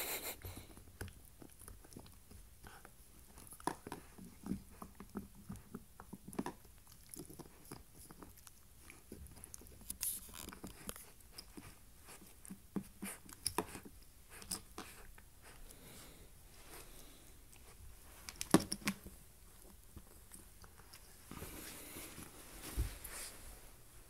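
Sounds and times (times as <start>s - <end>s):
puppy gnawing an antler: 0.7s - 15.8s.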